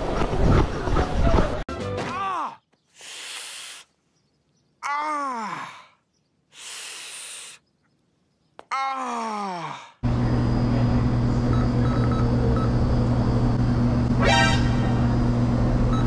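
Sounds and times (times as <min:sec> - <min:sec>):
person groaning: 0:04.8 - 0:06.0, 0:08.7 - 0:10.0.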